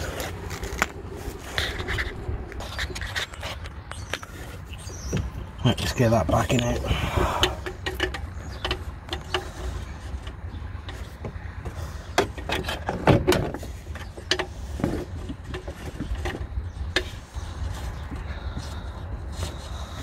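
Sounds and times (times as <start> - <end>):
steady low rumble: 0.0 - 12.1.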